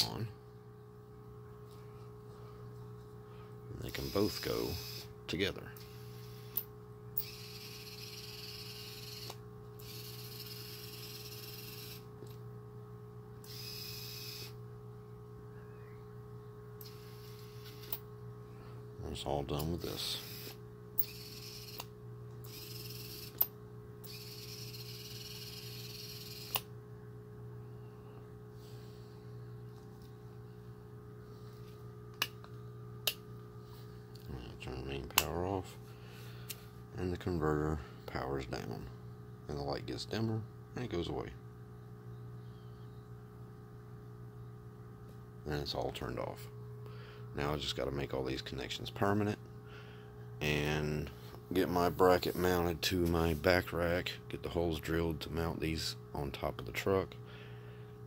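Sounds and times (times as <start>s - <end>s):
faint electrical hum: 0.0s - 58.0s
electric motors whirring: 3.8s - 5.1s, 7.2s - 12.1s, 13.4s - 14.6s, 16.8s - 18.0s, 19.8s - 23.4s, 24.0s - 26.7s.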